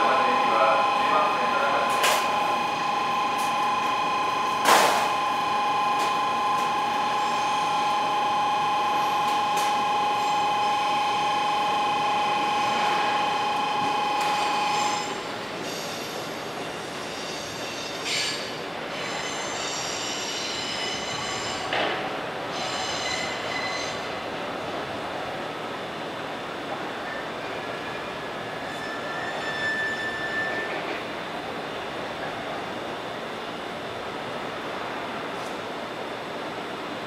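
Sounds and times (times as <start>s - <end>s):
high two-note train squeal: 0.0s - 21.8s, 22.5s - 24.1s, 27.0s - 31.0s
rumble of rail traffic: 0.0s - 37.0s
short screech: 28.7s - 30.7s.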